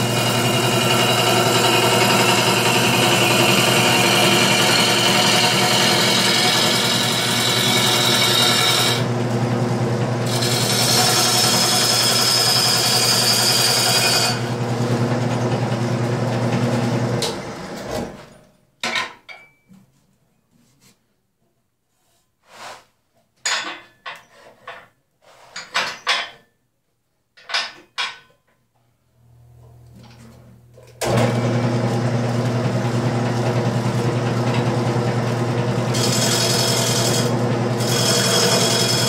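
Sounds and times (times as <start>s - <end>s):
lathe winding down: 0.0s - 17.9s, 31.0s - 39.0s
wood lathe motor hum: 0.0s - 17.9s, 31.0s - 39.0s.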